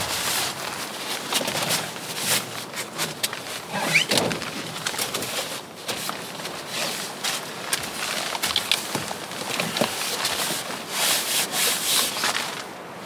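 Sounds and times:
tarp and fabric crinkling: 0.0s - 13.0s
cot legs clicking and knocking: 7.6s - 10.4s.

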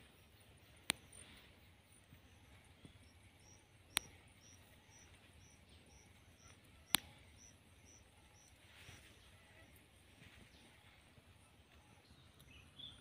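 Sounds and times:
small animal chirping: 2.2s - 9.7s
sharp clicks: 3.1s - 7.5s.

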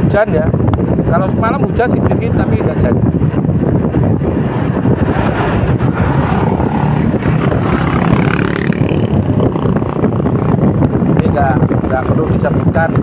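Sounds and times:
road noise: 0.0s - 13.0s
motorcycle engine: 3.2s - 12.0s.

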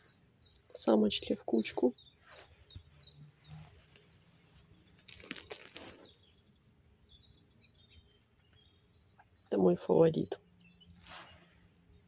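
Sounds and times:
brief rustle: 3.5s - 6.2s, 11.0s - 11.7s.

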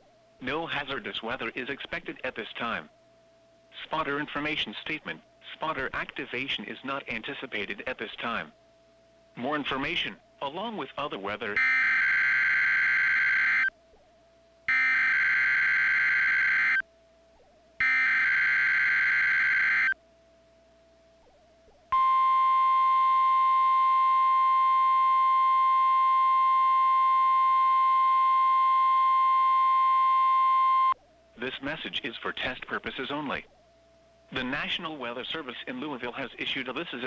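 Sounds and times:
steady warning alarm tone: 11.6s - 13.7s, 14.7s - 16.8s, 17.8s - 20.0s.

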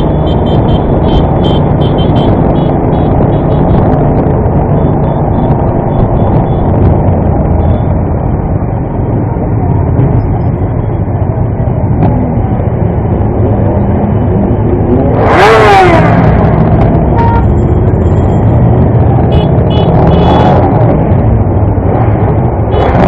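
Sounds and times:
motorcycle engine and road noise: 0.0s - 23.0s
motorcycle engine revving: 13.9s - 23.0s.

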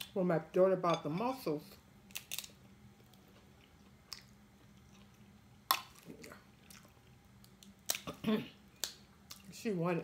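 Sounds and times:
crab shell cracking: 2.0s - 2.6s.

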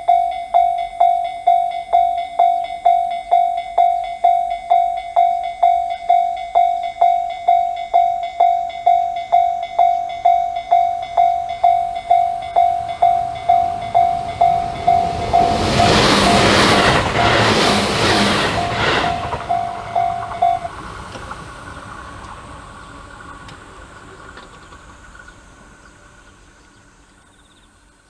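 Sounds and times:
level crossing electronic bell: 0.0s - 20.7s
electric train passing: 0.0s - 28.0s.

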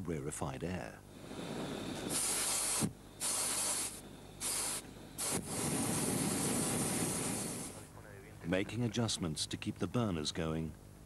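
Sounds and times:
balloon burner hissing: 1.1s - 7.9s.

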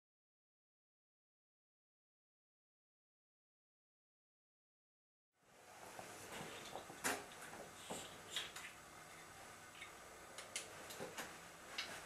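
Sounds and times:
faint clicks and taps: 6.0s - 12.0s.

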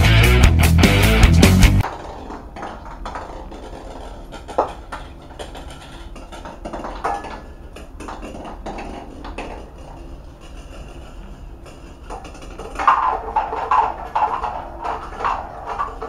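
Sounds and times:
rock music: 0.0s - 1.8s
steady low hum: 1.2s - 16.0s.

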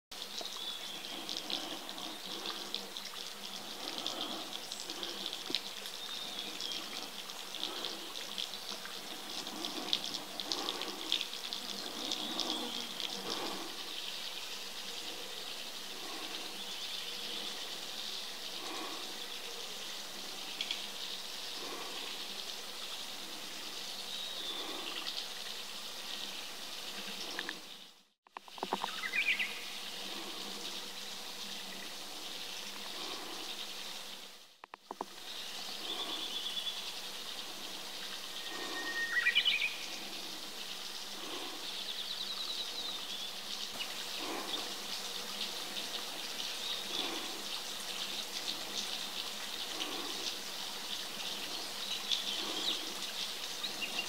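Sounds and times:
birds splashing in water: 0.2s - 14.3s
insects buzzing: 0.2s - 54.0s
whistled bird call: 38.4s - 39.8s.

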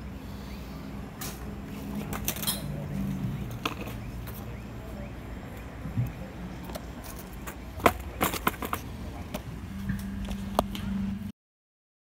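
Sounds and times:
low steady hum: 0.0s - 11.3s
skateboard clattering on pavement: 6.6s - 9.5s.

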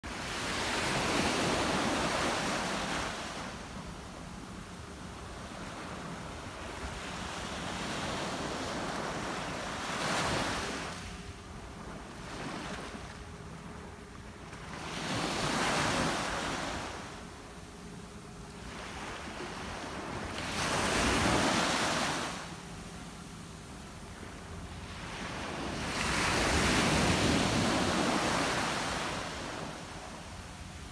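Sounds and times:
small waves breaking on beach: 0.0s - 3.5s, 5.4s - 11.0s, 18.6s - 22.6s, 24.9s - 30.9s.

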